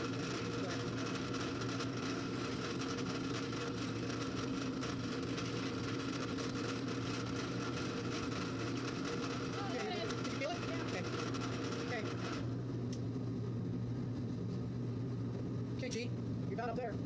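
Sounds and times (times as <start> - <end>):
drill press motor hum: 0.0 - 13.4.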